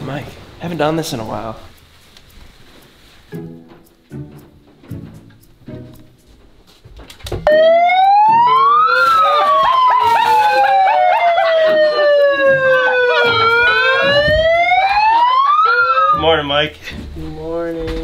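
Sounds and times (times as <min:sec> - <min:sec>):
megaphone siren wailing: 0:07.5 - 0:16.3.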